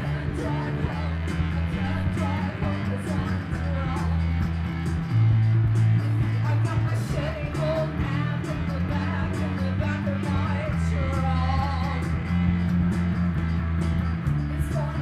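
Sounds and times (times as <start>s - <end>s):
woman singing: 0.0s - 4.5s, 6.0s - 12.3s, 14.5s - 15.0s
live rock band playing: 0.0s - 15.0s.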